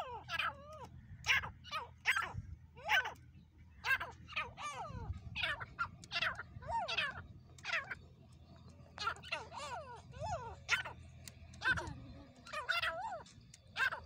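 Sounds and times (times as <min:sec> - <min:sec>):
francolins calling: 0:00.0 - 0:14.0.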